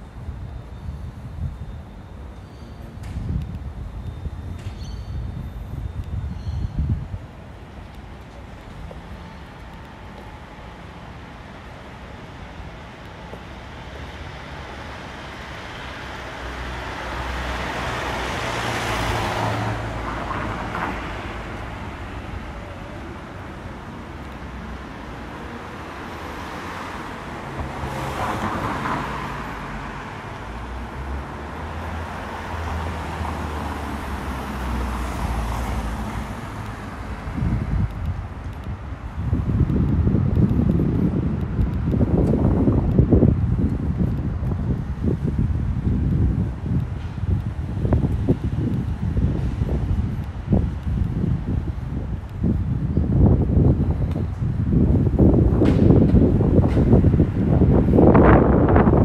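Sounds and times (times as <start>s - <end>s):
street background noise: 0.0s - 59.0s
wind buffeting microphone: 3.0s - 11.5s, 32.4s - 59.0s
cars passing: 6.8s - 59.0s.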